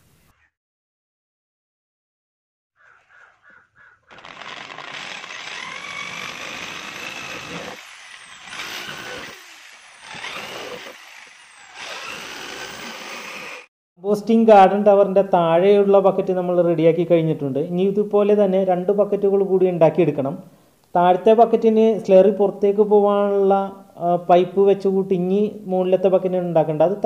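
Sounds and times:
cordless drill whining: 4.1 - 13.7.

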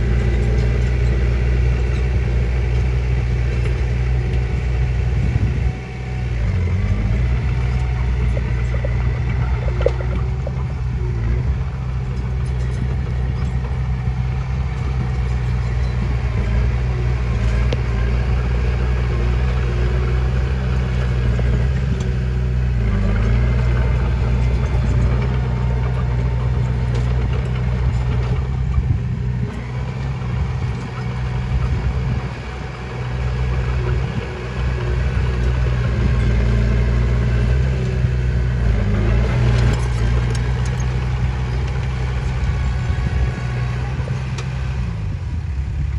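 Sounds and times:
bulldozer diesel engine running: 0.0 - 45.9.

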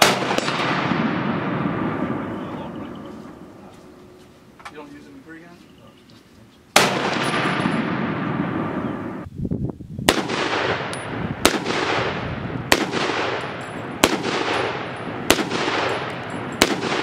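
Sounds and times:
rifle shots ringing: 0.0 - 3.6, 6.7 - 9.2, 10.1 - 17.0.

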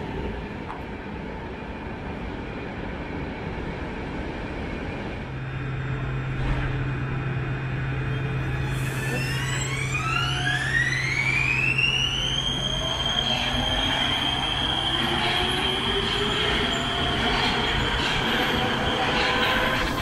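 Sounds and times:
electric train traction whine: 5.2 - 20.0
train wheels rumbling on track: 5.3 - 20.0.

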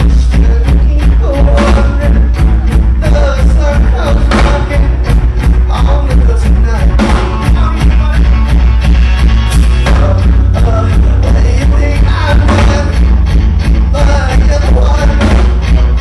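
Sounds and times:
person singing: 0.0 - 8.8, 9.6 - 16.0
drum beat: 0.0 - 16.0
rock band playing: 0.0 - 16.0.

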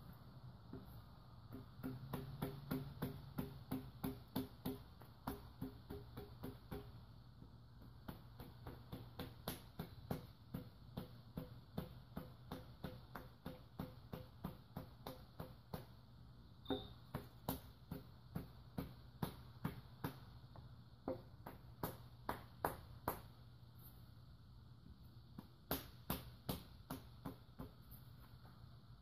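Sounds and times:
high metallic ping: 16.6 - 17.0.

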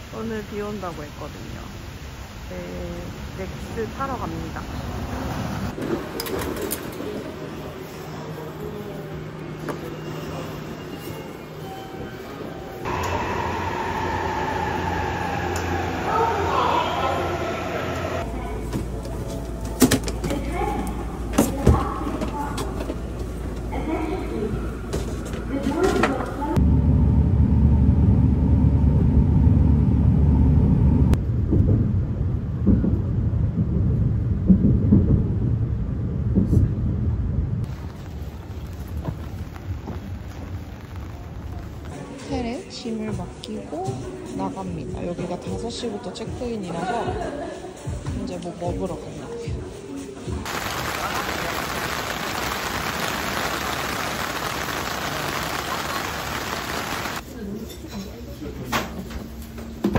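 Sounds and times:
train rumble inside carriage: 0.0 - 45.5
heavy rain on plastic umbrella: 37.7 - 42.6, 50.5 - 57.2.

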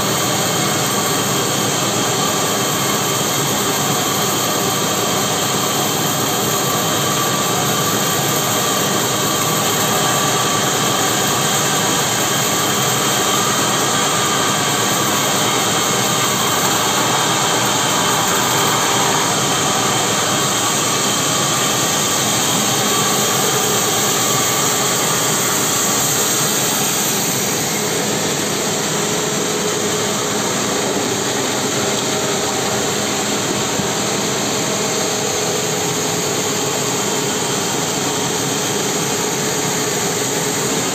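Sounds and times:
sawmill saw cutting log: 0.3 - 28.6.

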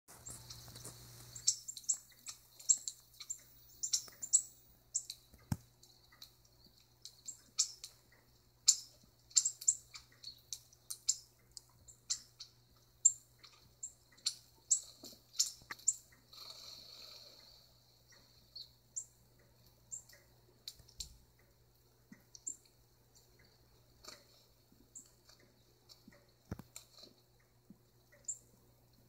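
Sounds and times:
small birds chirping: 0.1 - 29.0.

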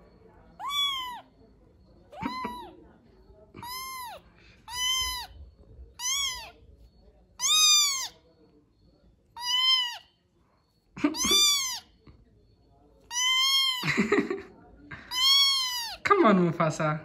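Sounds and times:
kitten meowing: 0.6 - 1.2, 2.1 - 2.8, 3.6 - 5.4, 6.0 - 6.6, 7.4 - 8.2, 9.4 - 10.0, 11.2 - 11.9, 13.1 - 13.8, 15.1 - 16.0.

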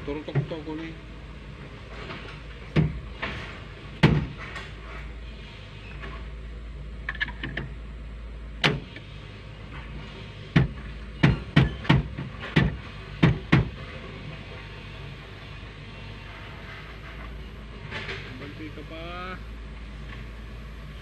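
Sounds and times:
diesel engine running: 0.0 - 21.0
excavator bucket knocks: 10.6 - 13.8.

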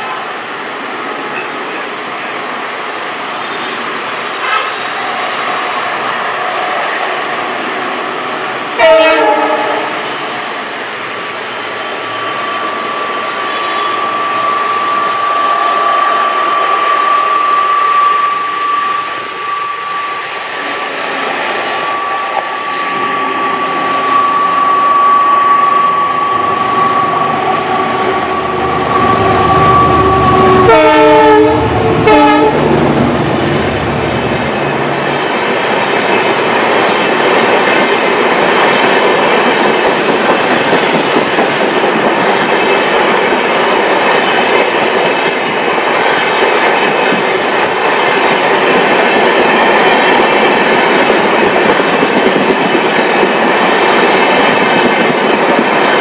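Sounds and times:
diesel locomotive engine: 0.0 - 56.0
train horn blasts: 8.8 - 10.3, 21.2 - 32.7
steady whine: 10.2 - 35.6
train wheels clacking: 35.1 - 56.0.

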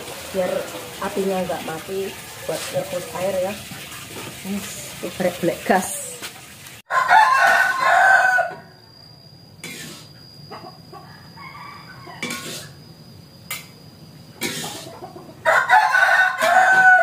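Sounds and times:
rooster crowing: 6.9 - 9.1, 10.5 - 12.8, 15.1 - 17.0
chicken clucking: 14.4 - 15.6.

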